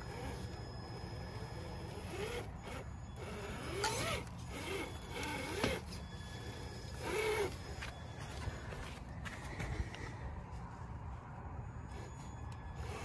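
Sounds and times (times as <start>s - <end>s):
electric motor whining: 0.0s - 8.8s, 11.8s - 13.0s.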